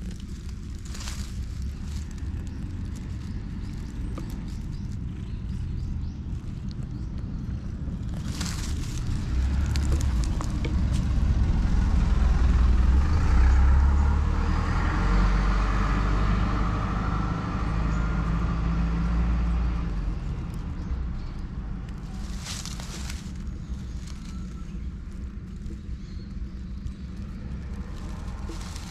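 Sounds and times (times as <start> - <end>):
vehicle passing: 8.3 - 25.2, 26.5 - 28.9.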